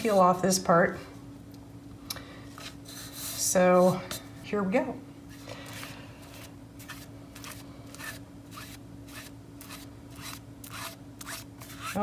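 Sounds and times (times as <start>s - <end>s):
brush scraping strokes: 5.3s - 12.0s.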